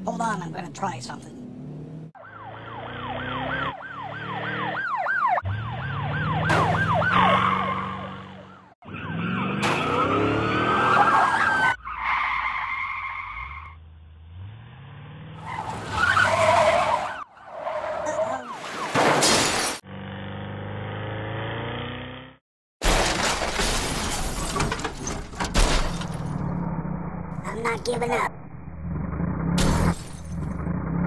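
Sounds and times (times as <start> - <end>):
car engine revving: 1.2 - 4.8, 5.5 - 11.8, 26.0 - 31.0
police siren yelping: 2.2 - 13.6, 15.4 - 19.0.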